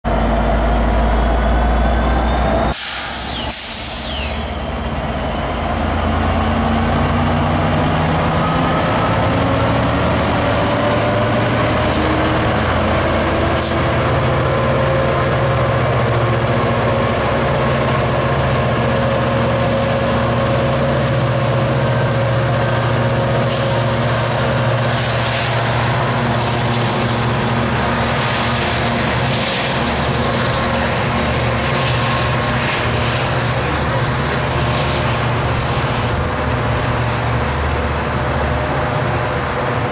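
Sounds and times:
diesel locomotive engine: 0.0 - 39.9
train cars rolling past: 0.1 - 39.9
air brake hiss: 2.7 - 4.6.

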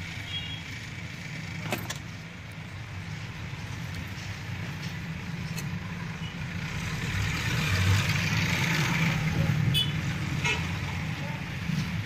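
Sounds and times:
road traffic hum: 0.0 - 12.0
vehicle passing: 5.9 - 12.0.

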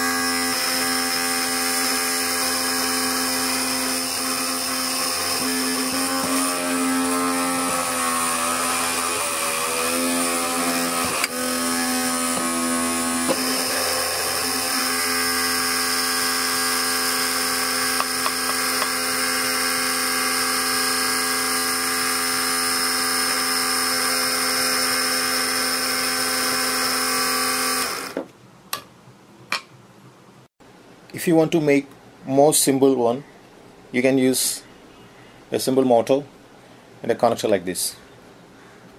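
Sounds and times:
small motor high whine: 0.0 - 28.2.

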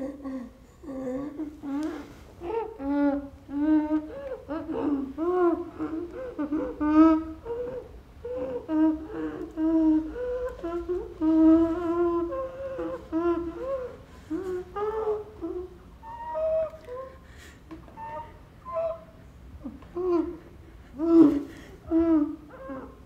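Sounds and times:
woman humming a slow tune: 0.0 - 17.2.

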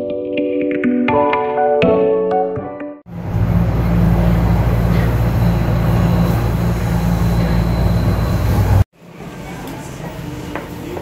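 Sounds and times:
subway car rumble and hum: 3.1 - 11.0.

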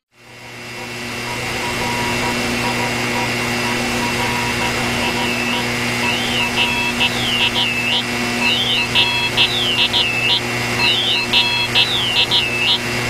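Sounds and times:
buzzing multi-tone drone: 0.2 - 13.0
radio static hiss: 0.3 - 13.0
warbling radio signal: 0.8 - 13.0.

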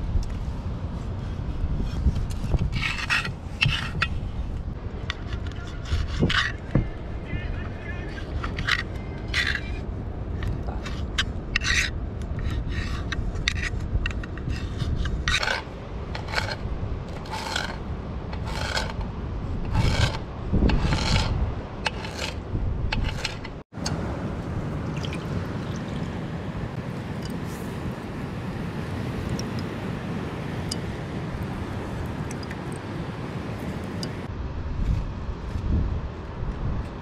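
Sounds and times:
knife scraping against metal: 1.9 - 4.2, 10.8 - 13.8, 14.4 - 17.8, 18.4 - 19.1, 19.7 - 23.6.

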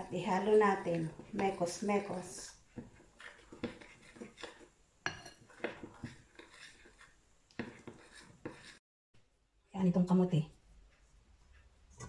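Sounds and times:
metal spoon stirring in glass bowl: 0.0 - 8.8.

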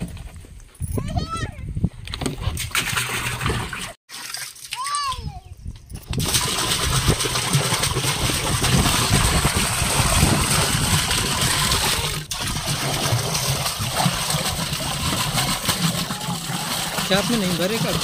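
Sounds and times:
water pouring into a drum: 6.2 - 18.0.

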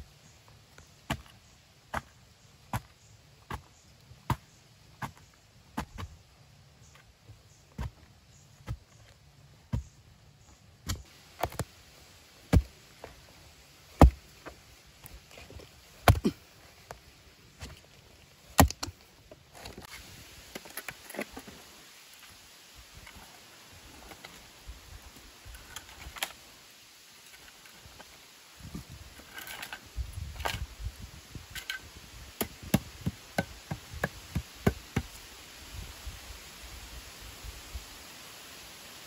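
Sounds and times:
soil scraping and crumbling: 0.0 - 35.3
hoe striking clay soil: 0.9 - 6.2, 7.6 - 10.0, 10.8 - 11.7, 12.4 - 17.9, 18.5 - 19.0, 31.5 - 35.2.

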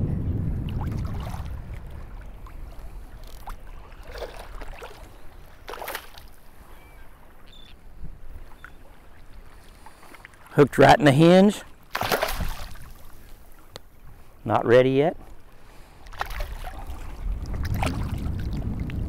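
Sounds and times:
water lapping and splashing: 0.5 - 19.0
fish splashing: 0.7 - 6.4, 11.9 - 13.2.

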